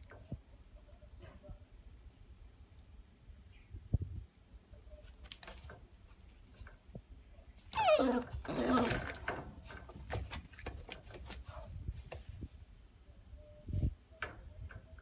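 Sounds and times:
puppy whining: 0:07.7 - 0:09.2
rattles against wire crate bars: 0:08.2 - 0:11.1.

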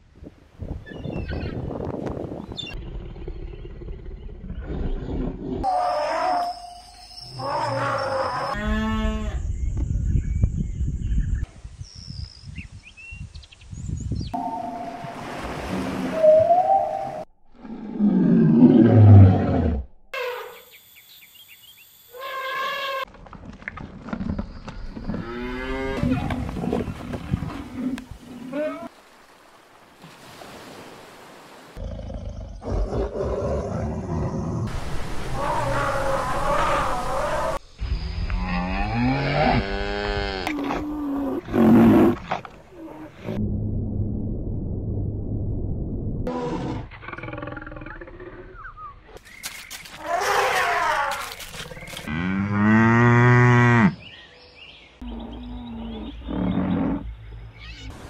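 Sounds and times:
rough animal call: 0:35.3 - 0:37.6, 0:50.0 - 0:54.0, 0:55.0 - 0:57.9
ground noise: 0:42.5 - 0:46.4
birds chirping: 0:50.7 - 0:58.0
cow mooing: 0:52.1 - 0:54.0.

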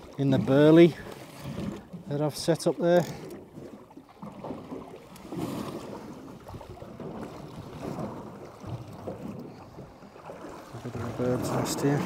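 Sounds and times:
water slapping against metal hull: 0:00.0 - 0:12.0.

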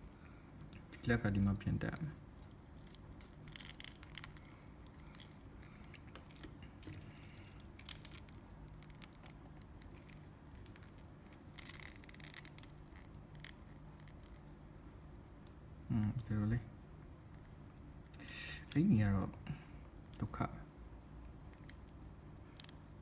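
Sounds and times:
faint low hum: 0:00.0 - 0:23.0
plastic parts clicking and scraping: 0:02.0 - 0:14.4.

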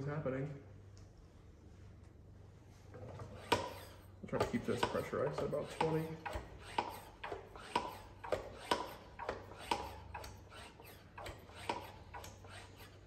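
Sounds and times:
hand pump clicking: 0:03.4 - 0:13.0.

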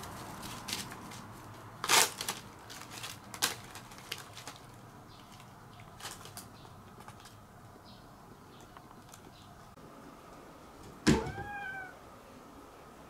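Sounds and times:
dry leaves crunching and rustling: 0:00.0 - 0:06.5.

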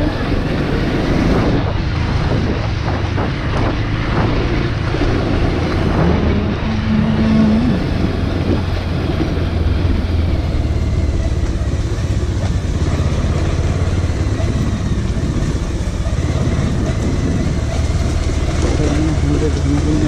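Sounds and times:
motorcycle engine running: 0:00.0 - 0:20.0
road and wind noise: 0:00.0 - 0:20.0.

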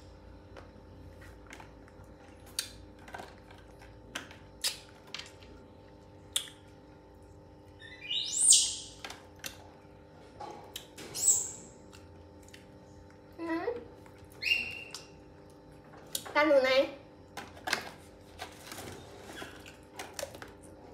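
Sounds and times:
baby monkey squealing: 0:07.8 - 0:09.0, 0:14.4 - 0:15.0.

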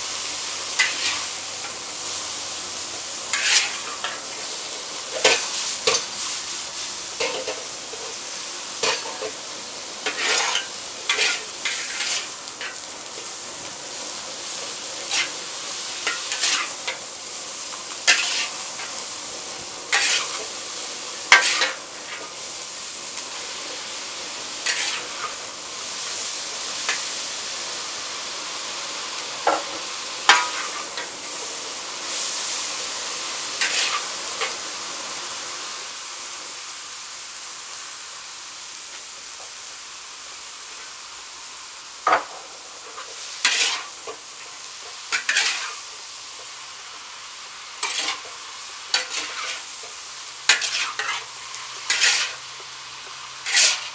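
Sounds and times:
vegetables sizzling in a wok: 0:00.0 - 0:53.9
spatulas scraping and clanking on wok: 0:00.6 - 0:02.6, 0:03.2 - 0:22.5, 0:24.6 - 0:27.2, 0:29.4 - 0:32.8, 0:33.4 - 0:34.6, 0:42.0 - 0:47.0, 0:47.7 - 0:53.9.

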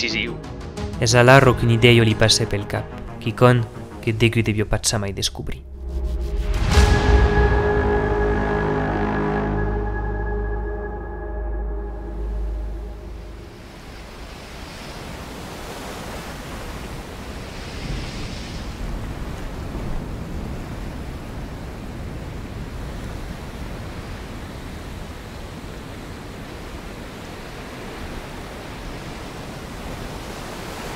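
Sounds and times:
ocean surf breaking: 0:12.0 - 0:30.9.

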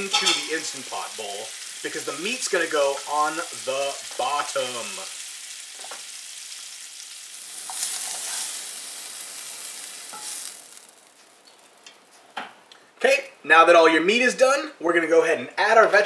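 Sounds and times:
butter sizzling in frying pan: 0:00.0 - 0:12.3.

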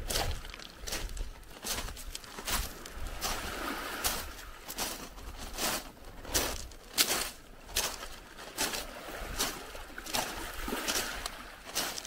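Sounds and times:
footsteps on sand: 0:00.0 - 0:12.0.

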